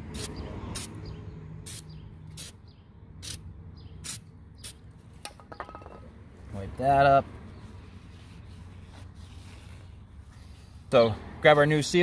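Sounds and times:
aerosol spray bursts: 0.1 - 0.9.

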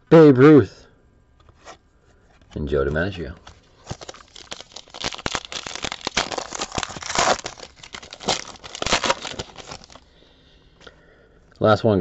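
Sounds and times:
wrapper tearing and crinkling: 3.7 - 10.0.

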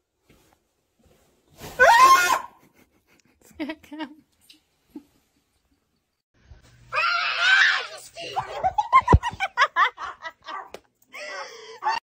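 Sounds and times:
woman screaming: 1.8 - 2.5, 6.9 - 8.0
breathless laughter: 2.6 - 3.8.

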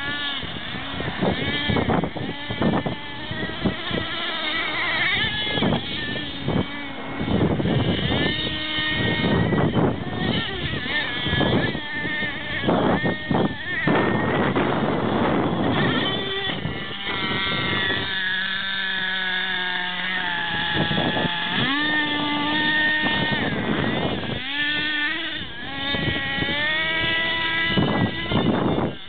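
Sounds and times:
model truck engine revving: 0.0 - 29.0.

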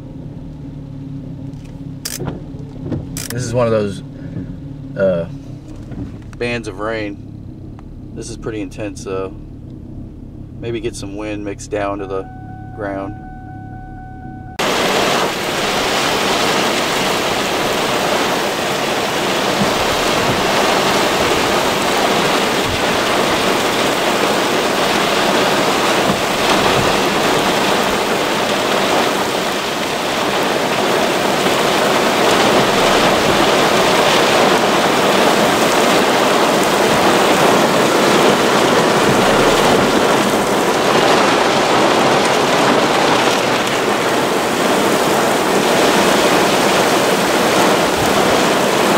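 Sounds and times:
heavy rain on a car: 14.6 - 48.9.

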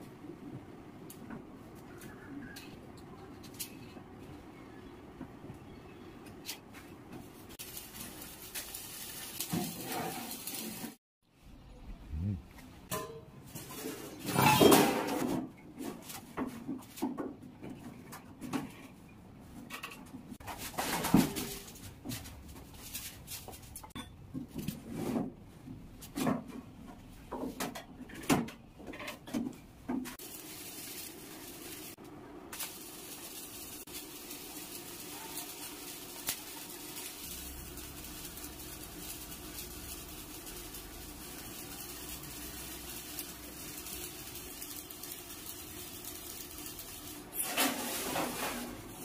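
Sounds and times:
arc welding hiss: 7.5 - 11.0, 30.2 - 49.0
metal clanks on steel sheet: 12.9 - 15.4.

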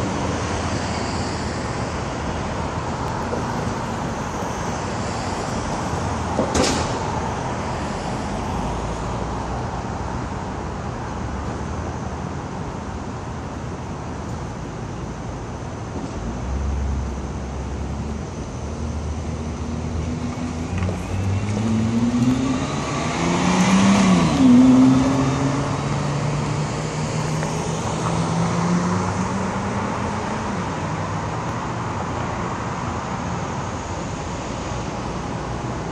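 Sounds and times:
car engine accelerating: 19.8 - 30.5.

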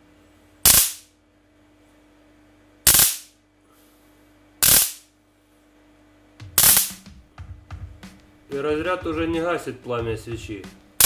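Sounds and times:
high-voltage spark bursts: 0.6 - 1.1, 2.9 - 3.4, 4.6 - 5.1, 6.6 - 7.1.

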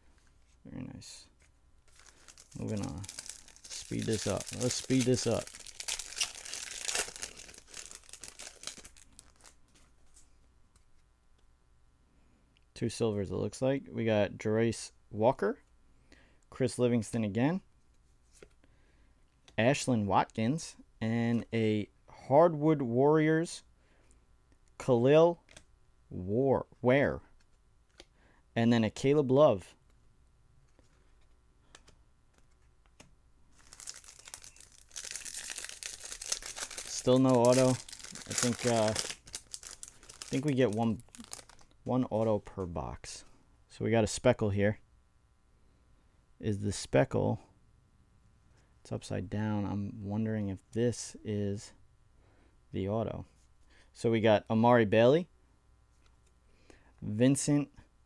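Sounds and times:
foil wrapper crinkling: 1.8 - 9.6, 33.5 - 41.7
faint clicks of cards: 27.4 - 28.2, 30.6 - 33.2.

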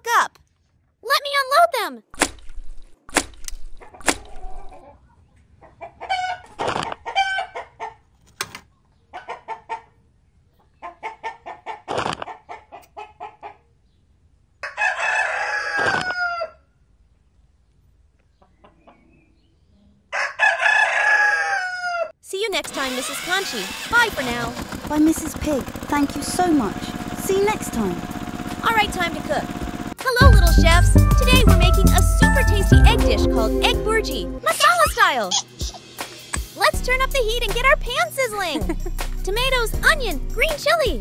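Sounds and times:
chicken clicks: 3.1 - 4.8, 11.9 - 13.0
chicken clucking: 3.8 - 8.2, 8.9 - 13.7, 18.3 - 19.4
rooster crowing: 14.6 - 16.6, 20.1 - 22.1.

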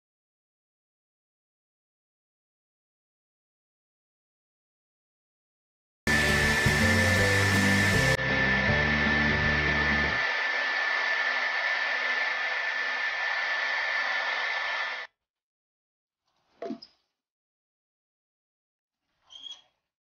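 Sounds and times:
electric blower motor whining: 6.1 - 15.1.

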